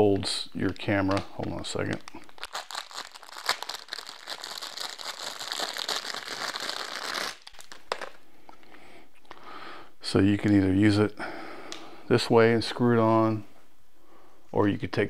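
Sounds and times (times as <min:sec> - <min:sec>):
plastic packaging crinkling: 0:00.2 - 0:08.3.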